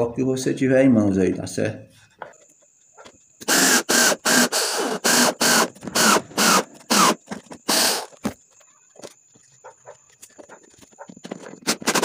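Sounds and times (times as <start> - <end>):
cordless drill whine bursts: 3.4 - 8.4.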